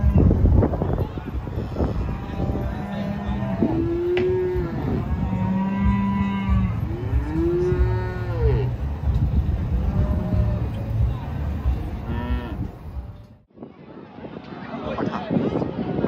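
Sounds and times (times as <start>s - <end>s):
cattle mooing: 1.8s - 8.8s, 12.0s - 12.7s.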